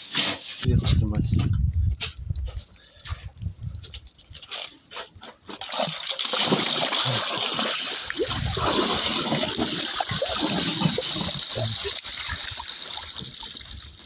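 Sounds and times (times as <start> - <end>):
water splashing: 5.5 - 14.0.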